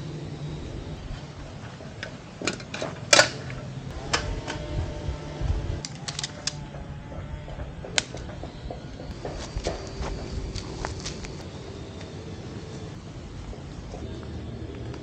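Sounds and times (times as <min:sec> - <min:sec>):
folding chair frame clicking: 0:02.4 - 0:04.7, 0:05.8 - 0:06.6.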